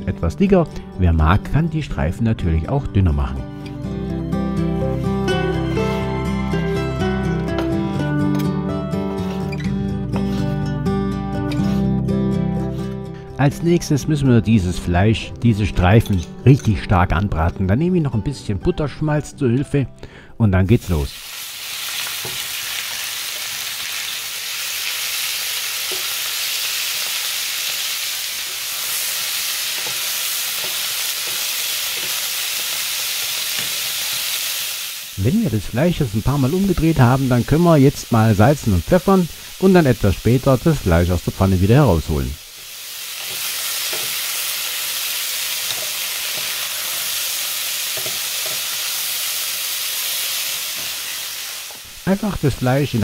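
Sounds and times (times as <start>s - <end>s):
meat sizzling in a frying pan: 20.8s - 52.9s.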